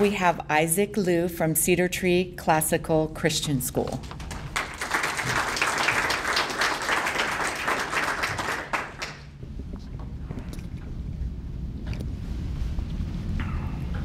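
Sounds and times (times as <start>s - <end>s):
small audience applauding: 4.0s - 9.4s.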